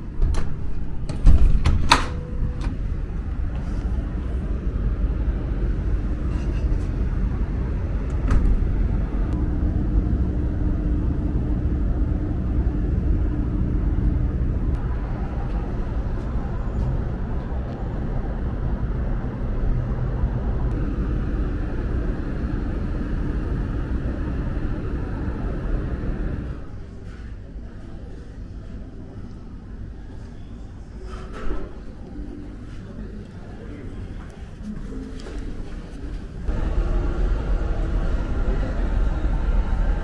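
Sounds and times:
distant road traffic: 1.9 - 27.2, 35.4 - 40.0
faint steady hum: 2.1 - 31.0.

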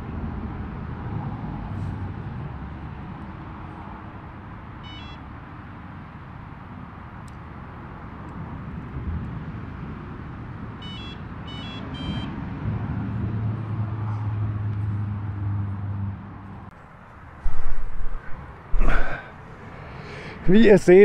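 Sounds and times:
engine humming: 10.9 - 21.0.

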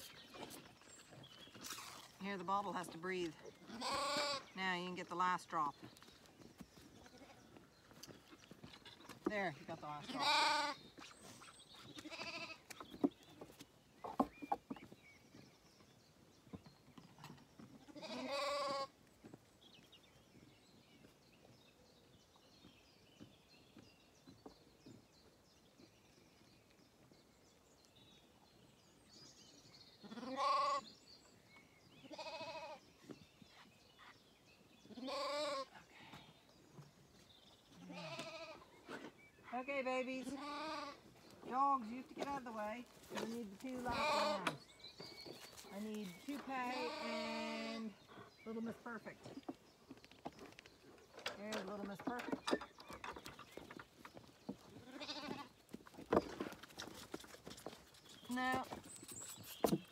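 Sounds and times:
lambs bleating: 3.7 - 4.5, 10.1 - 10.8, 12.0 - 12.6, 17.9 - 18.9, 30.0 - 30.8, 32.1 - 32.8, 34.9 - 35.6, 37.9 - 38.6, 40.4 - 41.0, 43.8 - 44.6, 46.6 - 47.9, 54.8 - 55.5.

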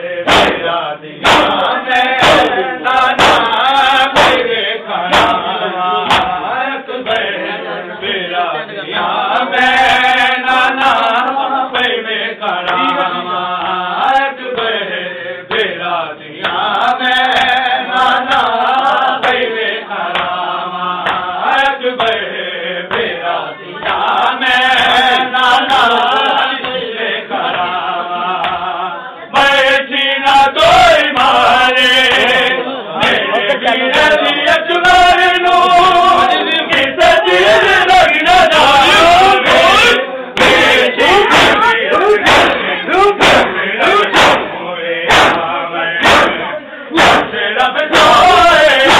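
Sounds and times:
men chanting a lament: 0.0 - 48.9
hands slapping chests: 0.3 - 4.5, 5.1 - 6.4, 20.1 - 20.4, 21.0 - 21.3, 39.4 - 46.4, 47.0 - 48.9.

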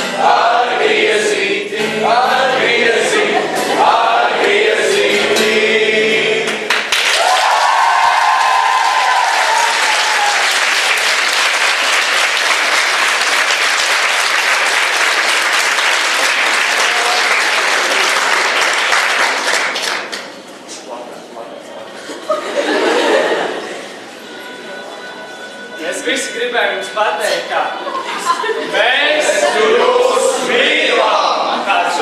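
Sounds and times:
group of voices singing: 0.0 - 6.8, 27.7 - 32.0
audience applause: 6.7 - 20.4
audience cheering: 7.0 - 19.3.

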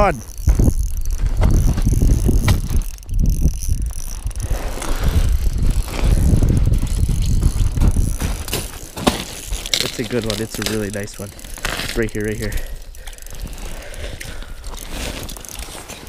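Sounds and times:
fishing reel ratcheting: 0.0 - 16.0.

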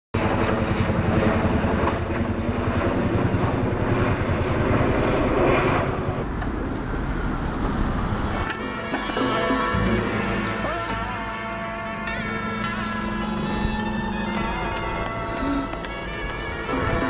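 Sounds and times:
helicopter rotors beating: 0.2 - 17.0.

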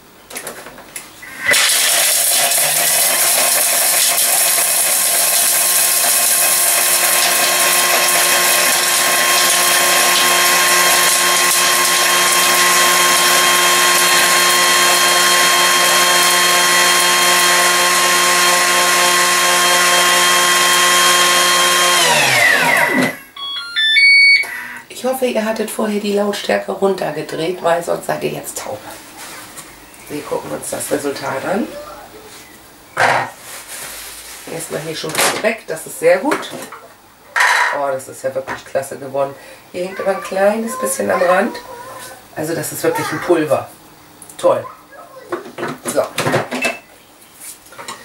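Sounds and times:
food processor grinding: 1.2 - 23.4.

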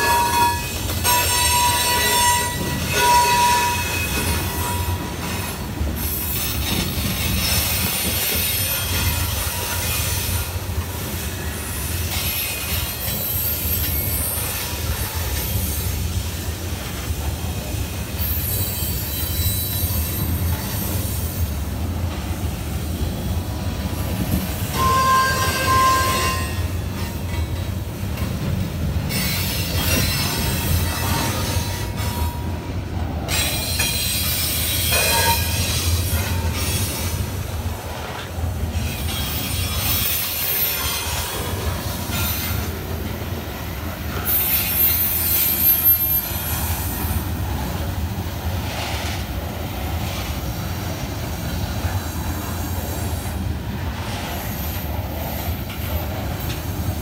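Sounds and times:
train wheels rumbling on rail: 0.0 - 57.0
high wheel squeals: 18.1 - 21.6, 24.1 - 27.2, 33.3 - 37.1, 43.8 - 47.3.

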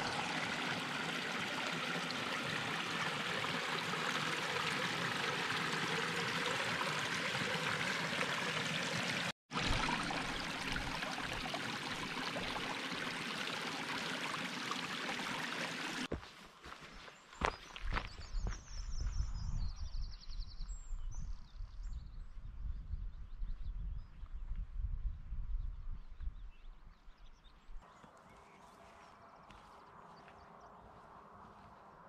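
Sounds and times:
stream running: 0.0 - 16.8.

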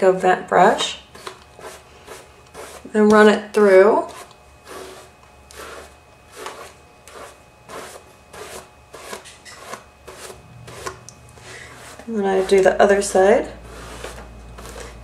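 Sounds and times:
brush rasping through hair: 1.2 - 2.9, 3.7 - 15.0.

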